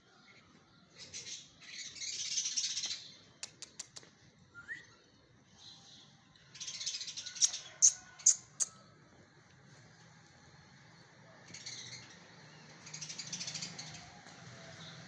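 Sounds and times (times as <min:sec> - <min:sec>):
small birds chirping: 0:00.3 - 0:08.8.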